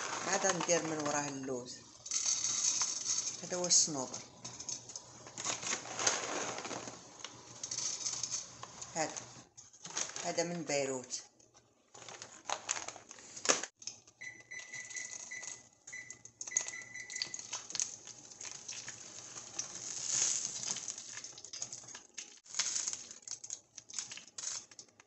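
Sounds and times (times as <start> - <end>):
nuts rattling in metal pan: 2.0 - 3.9, 4.5 - 8.5.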